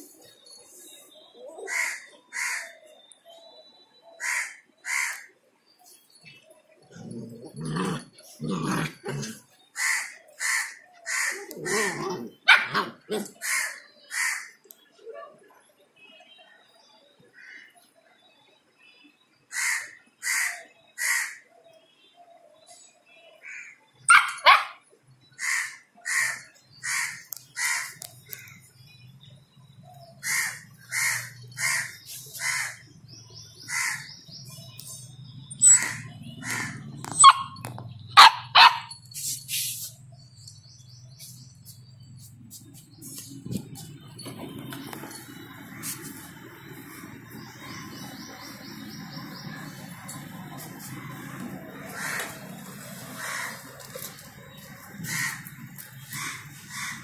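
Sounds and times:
crow cawing: 4.2s - 5.3s, 9.8s - 11.4s, 13.4s - 14.5s, 19.5s - 21.4s, 23.4s - 23.8s, 25.4s - 28.6s, 30.2s - 32.8s, 33.7s - 34.1s, 51.9s - 52.4s, 53.2s - 53.6s, 55.0s - 55.5s, 56.1s - 57.0s
puppy yapping: 35.6s - 37.6s.

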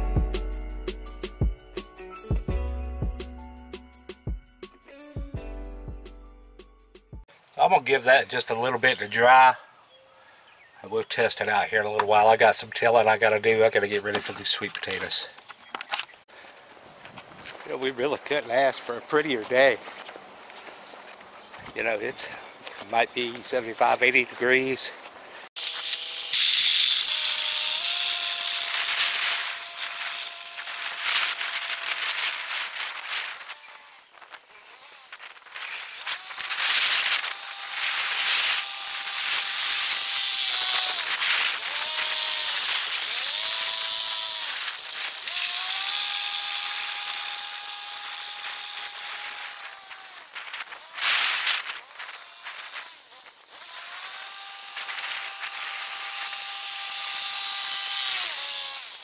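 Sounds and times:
tilling hiss: 21.8s - 59.0s.

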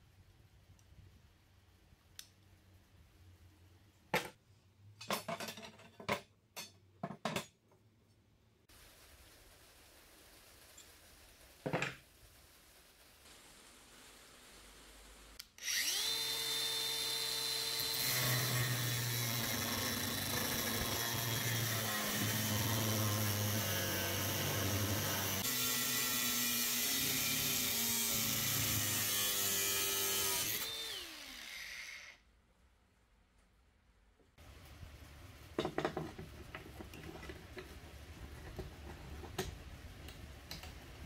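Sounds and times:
angle grinder whining: 15.4s - 32.2s
grinder cutting steel: 15.4s - 32.2s.

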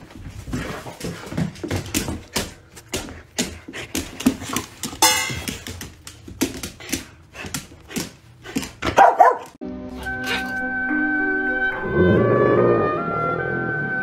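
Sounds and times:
metal dog bowls clattering: 4.6s - 5.8s
metal bowl ringing: 5.0s - 5.4s.

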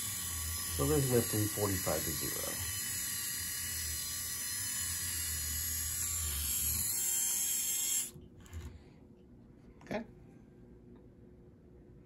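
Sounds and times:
servo motors whirring: 0.0s - 8.7s.

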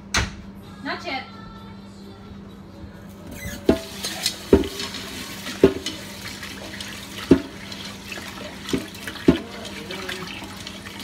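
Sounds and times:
tap running into a pot: 3.6s - 11.0s.

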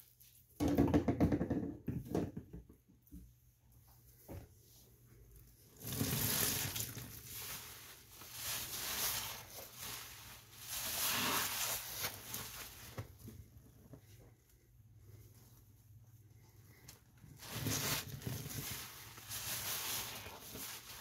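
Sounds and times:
soapy sponge squishing: 4.7s - 21.0s.

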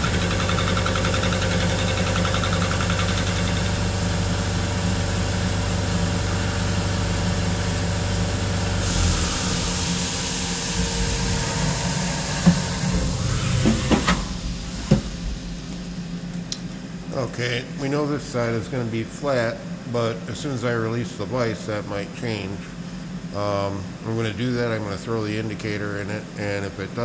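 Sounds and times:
milling machine cutting steel: 8.8s - 15.2s
hiss: 8.8s - 16.1s.

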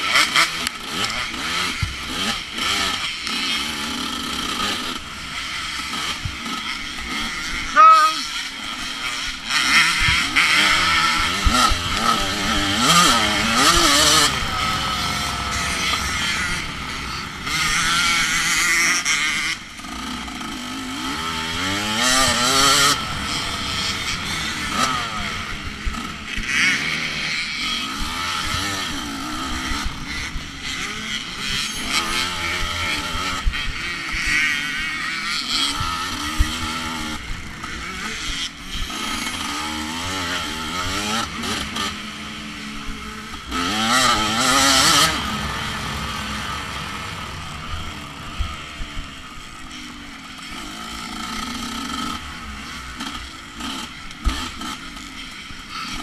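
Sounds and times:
dirt bike engine revving: 0.0s - 56.0s
rushing wind: 10.0s - 27.3s, 42.3s - 49.9s
terrain noise: 10.4s - 27.4s, 42.2s - 49.7s.

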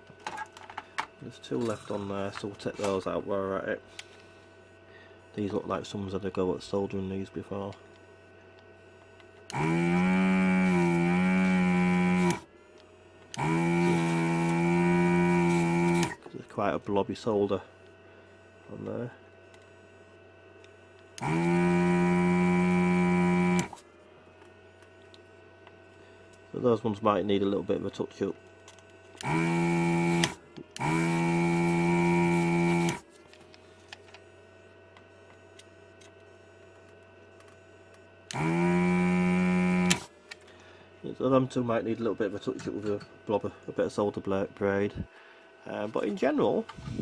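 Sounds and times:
desoldering pump buzzing: 0.0s - 47.0s
faint mains hum: 0.0s - 47.0s
vacuum pump motor with hiss: 9.5s - 12.5s, 13.3s - 16.3s, 21.2s - 23.8s, 29.2s - 33.1s, 38.3s - 40.1s, 46.5s - 47.0s.

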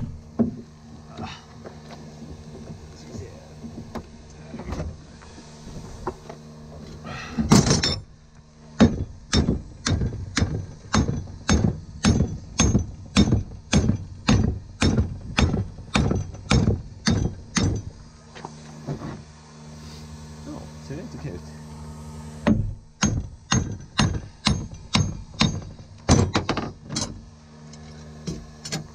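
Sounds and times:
hammer striking hot steel: 8.8s - 17.9s, 22.4s - 27.2s.

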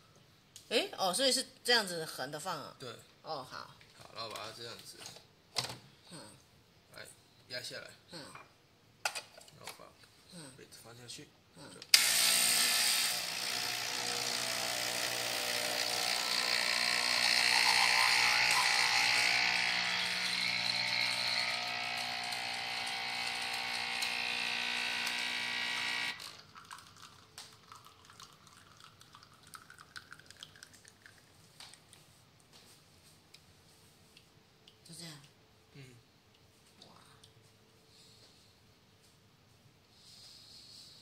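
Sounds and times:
espresso machine pump buzzing: 12.0s - 26.4s.

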